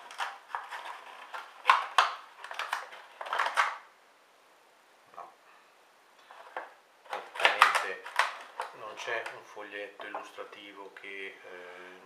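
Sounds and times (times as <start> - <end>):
sharp knocks and scraping: 0.0 - 3.8.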